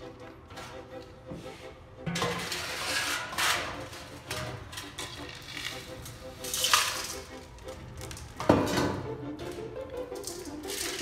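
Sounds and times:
gravel pouring against metal: 0:05.2 - 0:08.3, 0:10.2 - 0:11.0.

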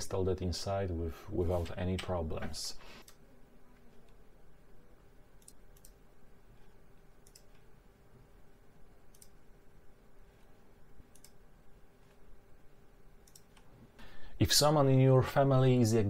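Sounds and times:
faint steady hum: 0:00.0 - 0:16.0
computer mouse clicks: 0:03.0 - 0:03.2, 0:05.4 - 0:06.0, 0:07.2 - 0:07.7, 0:09.0 - 0:09.4, 0:11.1 - 0:11.4, 0:13.2 - 0:13.7.

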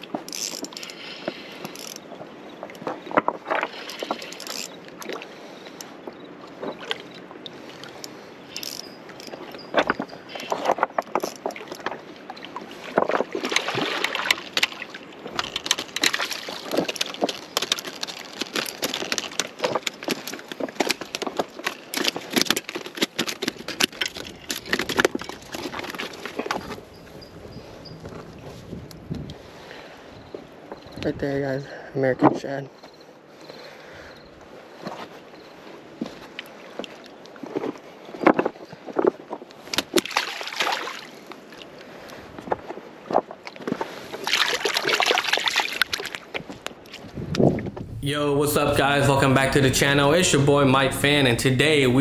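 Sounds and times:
water splashing: 0:10.3 - 0:20.7, 0:39.7 - 0:41.7, 0:43.5 - 0:47.0.

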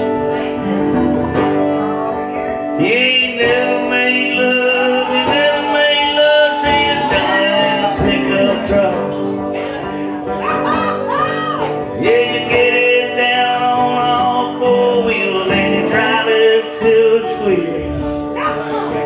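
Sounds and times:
acoustic guitar: 0:00.0 - 0:19.0
dobro sliding melody: 0:00.0 - 0:19.0.

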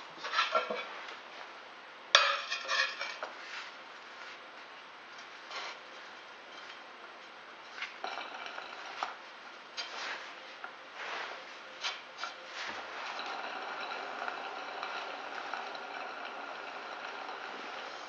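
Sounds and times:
bearing rubbing: 0:11.8 - 0:18.0
stone turntable clattering: 0:13.0 - 0:18.0.

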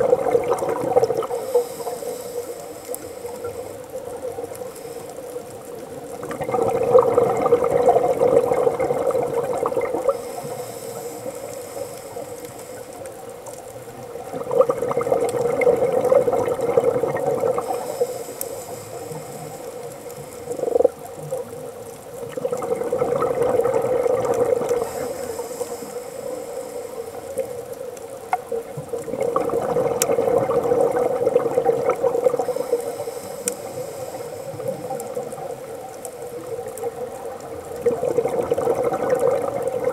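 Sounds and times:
exhaled bubbles rushing: 0:00.0 - 0:01.6, 0:06.0 - 0:10.2, 0:14.0 - 0:17.9, 0:20.4 - 0:25.1, 0:28.4 - 0:32.8, 0:34.5 - 0:39.9
regulator inhale hiss: 0:01.0 - 0:05.8, 0:09.9 - 0:13.6, 0:17.4 - 0:21.1, 0:24.5 - 0:27.9, 0:32.2 - 0:36.6.

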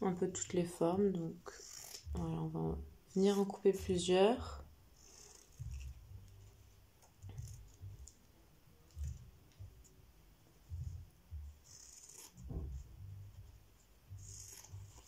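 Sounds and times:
scissors snipping fabric: 0:01.5 - 0:02.3, 0:11.6 - 0:12.4, 0:14.2 - 0:15.0
soft dull knocks: 0:09.0 - 0:10.0, 0:10.6 - 0:11.6, 0:12.4 - 0:13.6.

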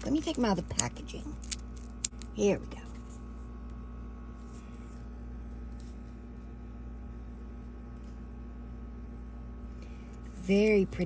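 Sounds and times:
steady low hum: 0:00.0 - 0:11.0
soft handling sounds: 0:01.4 - 0:06.6.

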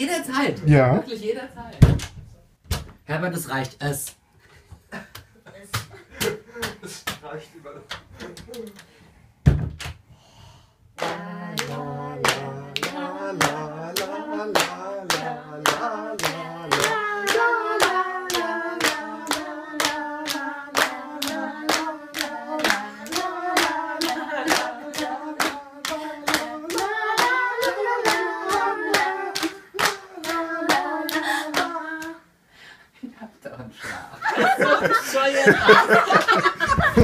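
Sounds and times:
people clapping in time: 0:11.0 - 0:32.1
group singing: 0:11.0 - 0:32.4.

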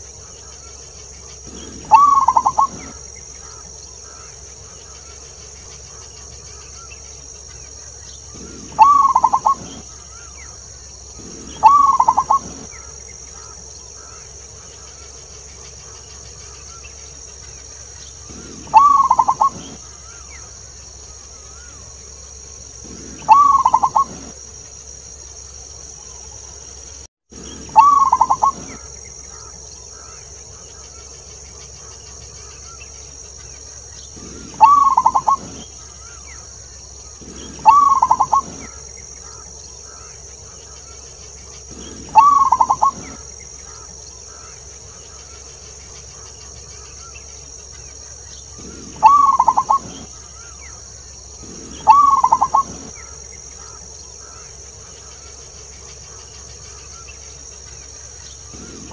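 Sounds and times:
steady high hiss: 0:00.0 - 0:58.9
dove cooing: 0:01.3 - 0:04.7, 0:08.3 - 0:14.2, 0:18.2 - 0:20.4, 0:22.8 - 0:24.4, 0:27.4 - 0:30.2, 0:34.2 - 0:36.2, 0:37.0 - 0:40.8, 0:41.6 - 0:44.6, 0:48.5 - 0:54.4, 0:58.5 - 0:58.9.

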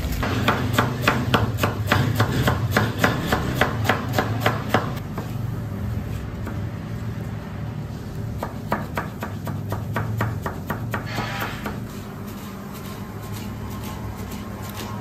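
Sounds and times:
knife chopping lettuce on board: 0:00.2 - 0:05.3, 0:08.4 - 0:15.0.

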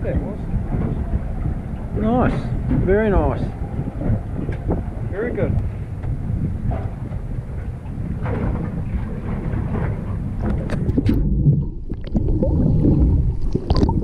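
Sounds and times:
wind and water noise: 0:00.0 - 0:14.0
muffled underwater bubbling: 0:07.7 - 0:14.0.

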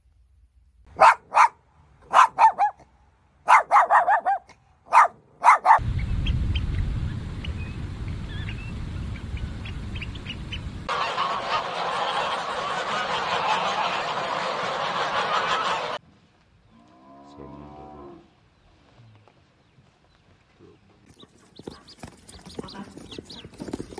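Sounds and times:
dog barking: 0:00.9 - 0:02.8, 0:03.5 - 0:05.8
oystercatchers piping: 0:02.1 - 0:02.8, 0:03.5 - 0:11.3, 0:20.6 - 0:23.9
wind and surf rumble: 0:05.7 - 0:12.7
geese honking: 0:06.6 - 0:16.0.

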